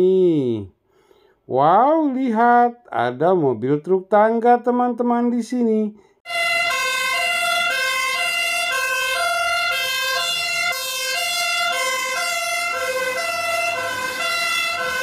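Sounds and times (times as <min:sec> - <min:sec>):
two-tone siren: 0:06.2 - 0:15.0
truck engine rumble: 0:06.4 - 0:15.0.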